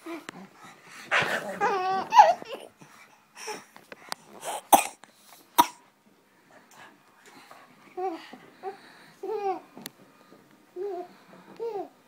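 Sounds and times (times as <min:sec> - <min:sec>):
baby laughing: 0:01.2 - 0:02.8.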